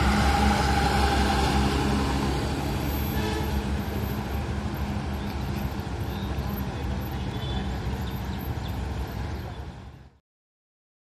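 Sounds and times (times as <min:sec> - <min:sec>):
diesel truck engine driving past: 0:00.0 - 0:09.2.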